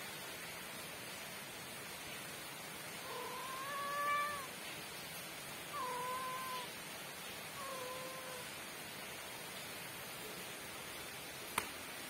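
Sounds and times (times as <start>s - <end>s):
cat meowing: 3.0s - 4.6s, 5.7s - 6.8s, 7.5s - 8.5s.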